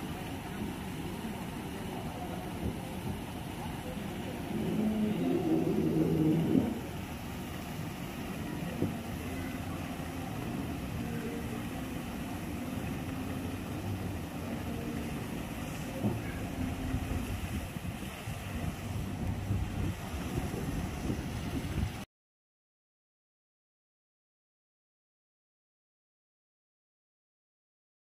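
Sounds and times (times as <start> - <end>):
churning water: 0.0 - 22.1
aerator motor drone: 0.2 - 21.7
wind buffeting microphone: 2.0 - 8.0, 16.0 - 22.0.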